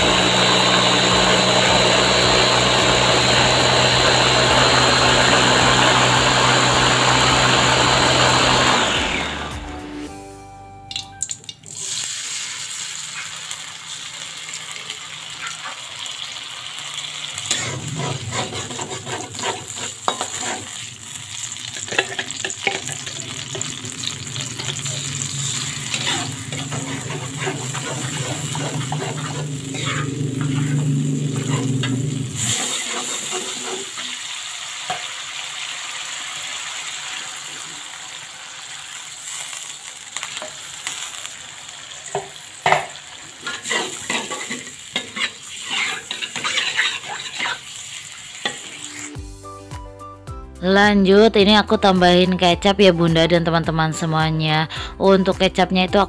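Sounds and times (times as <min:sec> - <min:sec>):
spice paste sizzling in oil: 0:11.8 - 0:49.2
metal spatula scraping pan: 0:17.4 - 0:34.3, 0:43.4 - 0:47.8
steady low hum: 0:24.5 - 0:32.5.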